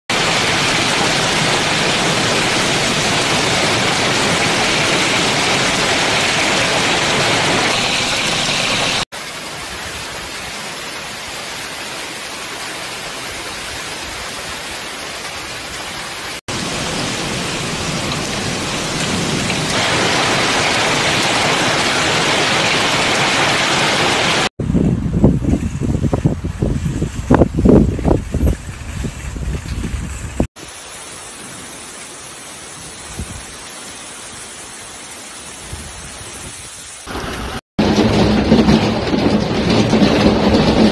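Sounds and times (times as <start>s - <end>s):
torrential rain and wind: 0.1s - 40.9s.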